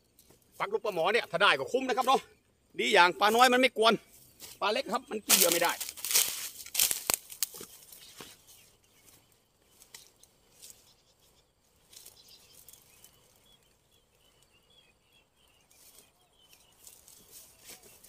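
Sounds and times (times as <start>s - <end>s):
grass rustling: 0.0s - 14.8s, 15.4s - 18.0s.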